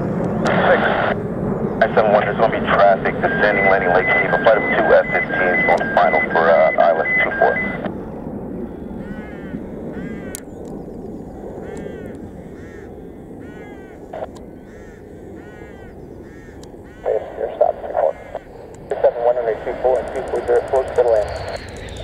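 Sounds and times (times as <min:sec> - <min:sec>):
distant jet aircraft rumble: 0:00.0 - 0:22.0
bird giving harsh calls: 0:09.0 - 0:10.4, 0:11.6 - 0:17.2, 0:18.1 - 0:18.7.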